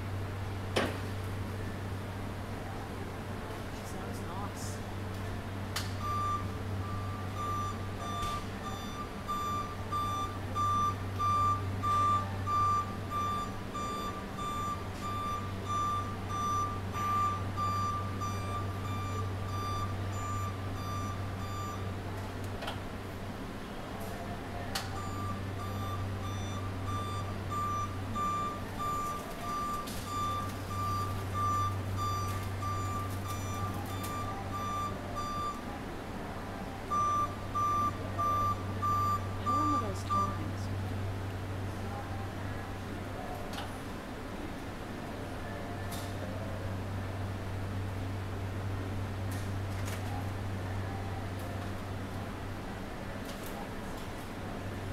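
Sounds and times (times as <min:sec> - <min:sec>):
low electric hum: 0:00.0 - 0:54.9
high warning beeps: 0:06.0 - 0:21.9, 0:24.9 - 0:35.6, 0:36.9 - 0:40.4.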